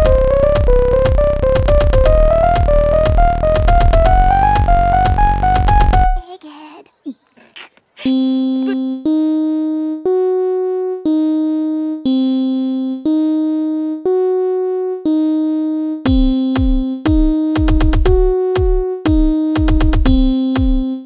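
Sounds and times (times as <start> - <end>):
deep bass thumps: 0.0 - 6.2, 16.1 - 20.8
synthesizer sustained chords: 0.0 - 6.2.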